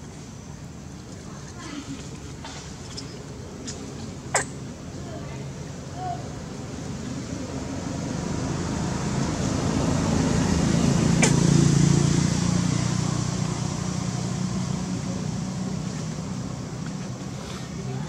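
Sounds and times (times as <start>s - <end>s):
vehicle engine passing by: 7.1s - 18.0s.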